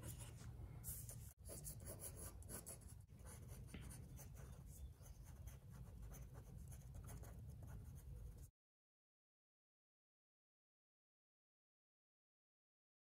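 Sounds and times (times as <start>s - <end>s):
pencil scratching on paper: 0.0s - 8.5s.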